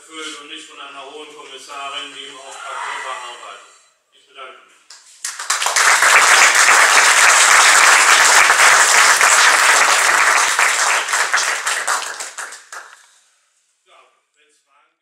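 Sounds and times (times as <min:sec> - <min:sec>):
audience applauding: 0:05.0 - 0:13.1.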